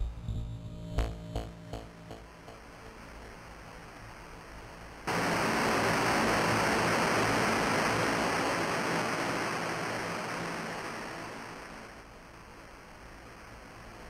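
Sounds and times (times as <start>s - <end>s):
white-noise hiss: 0.0s - 14.0s.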